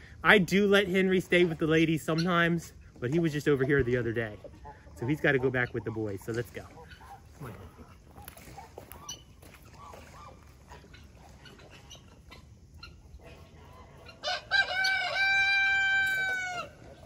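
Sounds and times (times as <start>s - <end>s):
rooster crowing: 14.2s - 16.8s.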